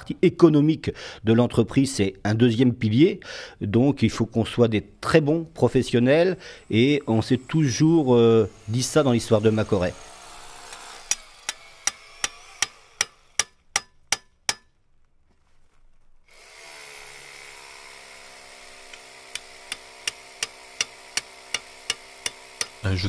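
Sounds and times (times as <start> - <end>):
sharp evenly spaced taps: 10.7 - 14.7, 18.9 - 22.9.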